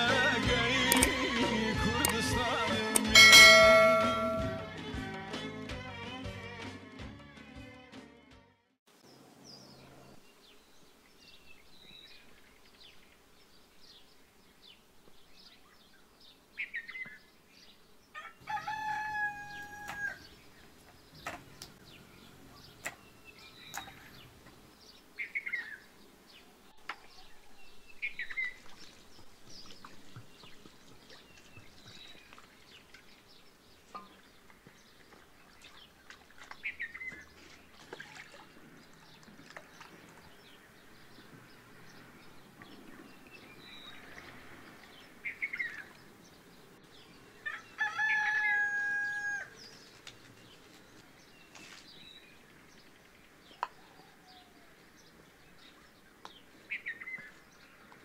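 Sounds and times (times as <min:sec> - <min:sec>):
small birds chirping: 0:09.0 - 0:58.0
rooster crowing: 0:18.2 - 0:20.3, 0:47.4 - 0:49.6.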